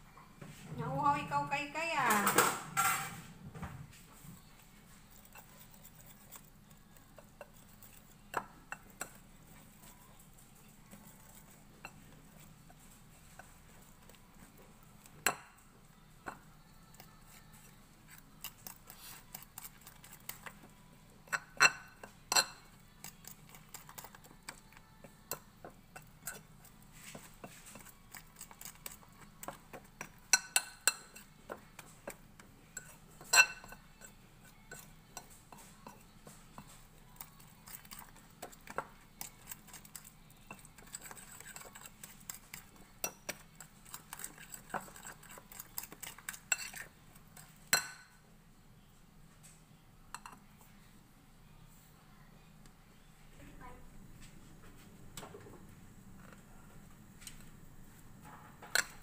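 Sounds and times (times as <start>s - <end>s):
whisk beating batter in bowl: 4.6s - 15.6s, 16.3s - 47.9s.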